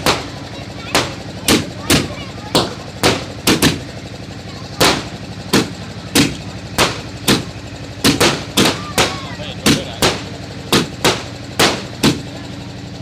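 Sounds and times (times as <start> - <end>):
low hum: 0.0 - 13.0
fireworks bangs: 4.8 - 12.4.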